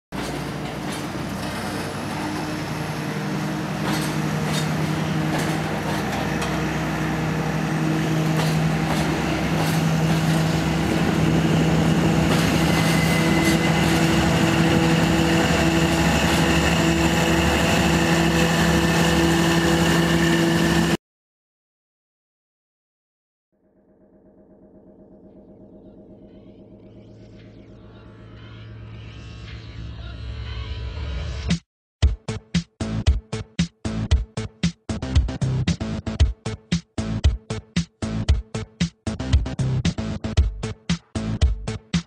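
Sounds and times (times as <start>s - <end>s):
freight train rumbling: 0.1s - 21.0s
rail clicks: 0.2s - 20.2s
locomotive engine drone: 0.2s - 21.0s.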